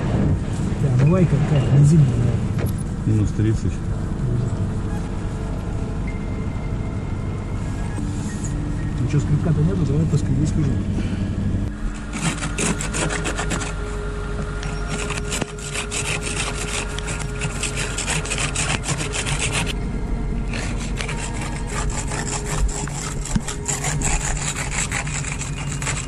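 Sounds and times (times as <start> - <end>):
ice scraper scraping windshield: 11.9 - 14.0, 14.6 - 19.8, 20.5 - 26.0.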